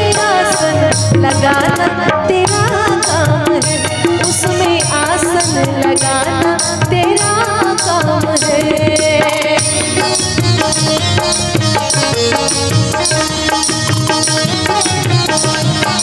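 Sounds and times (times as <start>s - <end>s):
woman singing devotional song: 0.0s - 12.4s
hand drum beat: 0.0s - 16.0s.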